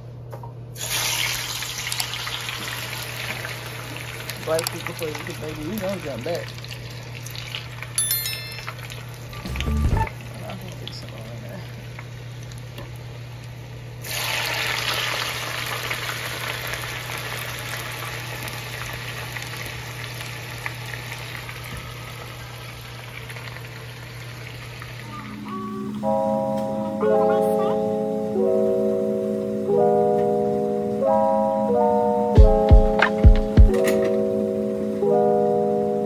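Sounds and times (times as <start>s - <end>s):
fries sizzling in oil: 0.8s - 9.4s, 10.3s - 25.1s
short chime: 8.0s - 10.1s.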